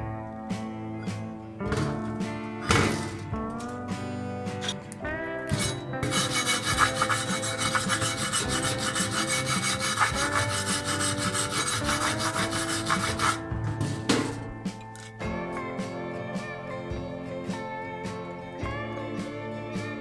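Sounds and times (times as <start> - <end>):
wire brush scrubbing metal: 5.5 - 13.4.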